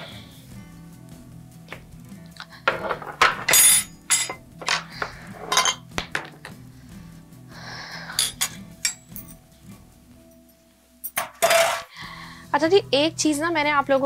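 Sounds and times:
soft background music: 0.0 - 14.0
kitchen things clattering: 2.7 - 6.6, 8.2 - 9.0, 11.0 - 11.9.

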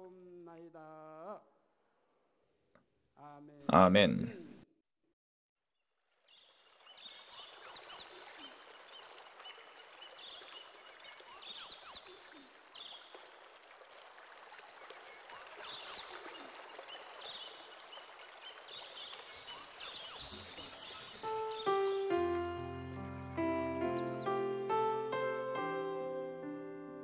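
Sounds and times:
birds chirping: 6.4 - 13.1, 14.9 - 26.0
stream-like hiss: 6.6 - 22.0.

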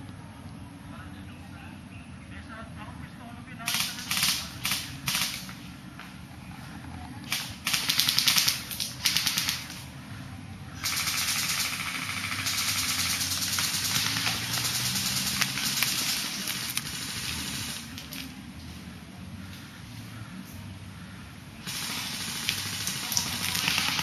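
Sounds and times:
airsoft guns firing: 3.6 - 5.6, 7.3 - 9.9, 10.8 - 18.2, 21.6 - 24.0
steady hiss: 21.6 - 24.0.

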